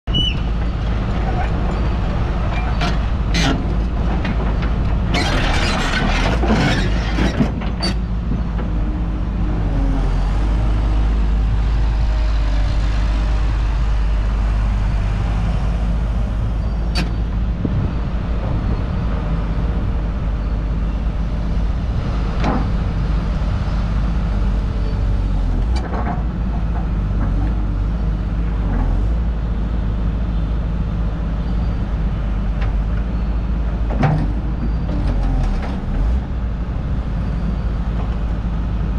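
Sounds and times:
excavator diesel engine running: 0:00.1 - 0:38.9.

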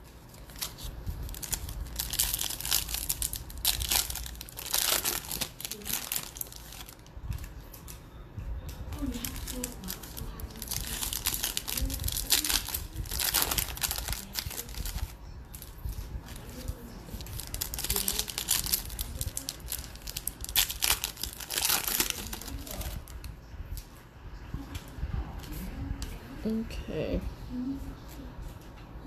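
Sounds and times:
card wrappers crinkling and tearing: 0:00.1 - 0:08.0, 0:09.0 - 0:23.2.

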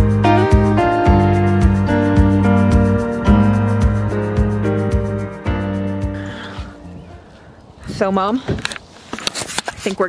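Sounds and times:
background music with steady beat: 0:00.0 - 0:06.9.

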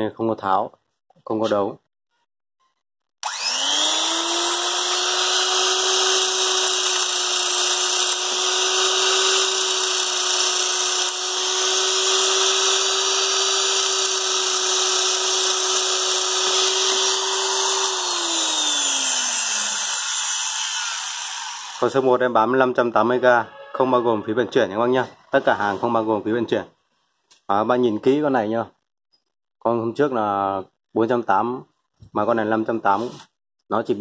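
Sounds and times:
electric shear motor humming: 0:03.2 - 0:22.0.

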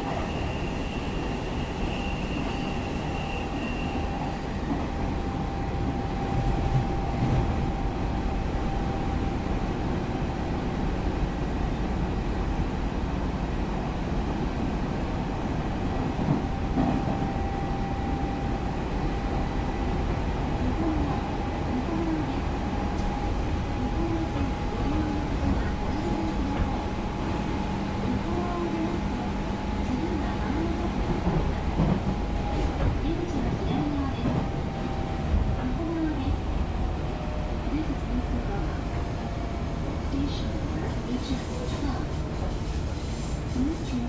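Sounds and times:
steady train whine: 0:00.0 - 0:44.0
train wheels rumbling on rail: 0:00.0 - 0:44.0.

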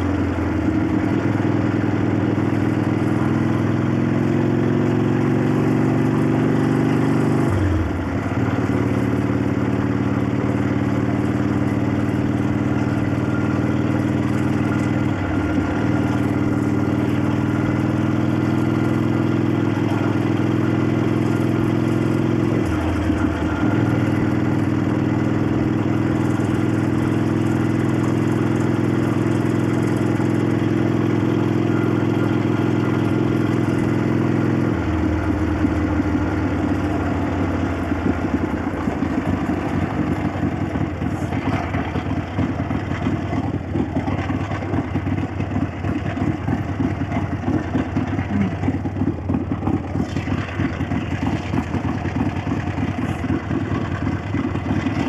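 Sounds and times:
motorcycle engine running: 0:00.0 - 0:55.0
valves clacking: 0:47.5 - 0:55.0.

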